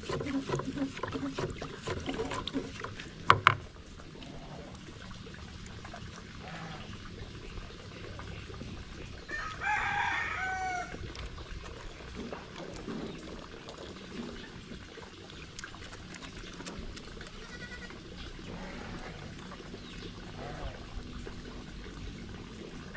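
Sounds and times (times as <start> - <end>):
rooster crowing: 9.3 - 10.9.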